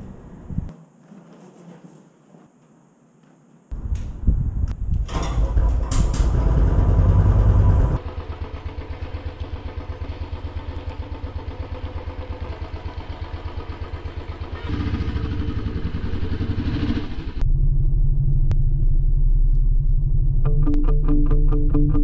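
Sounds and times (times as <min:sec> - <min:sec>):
motorcycle engine idling: 0:05.4 - 0:17.4.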